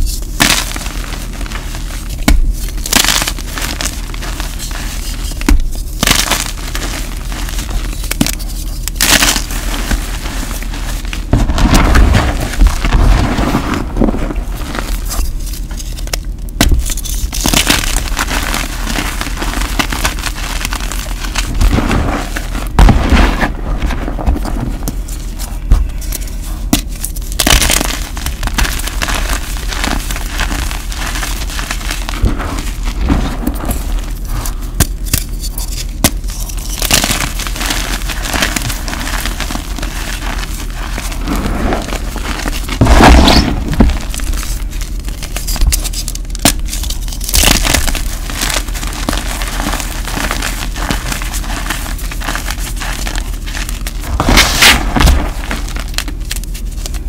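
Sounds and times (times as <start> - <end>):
hands crushing chalk: 0.0 - 57.0.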